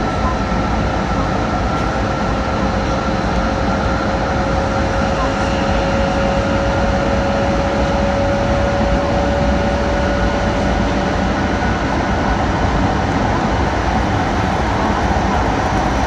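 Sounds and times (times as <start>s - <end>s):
thin steady whine: 0.0s - 11.8s
train running rumble: 0.0s - 16.0s.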